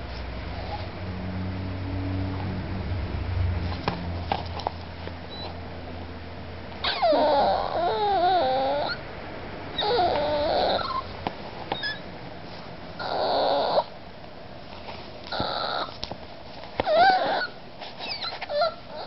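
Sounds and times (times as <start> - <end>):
puppy whining: 5.3 - 5.6, 6.8 - 9.1, 9.7 - 12.1, 13.0 - 14.0, 15.2 - 16.0, 16.8 - 19.0.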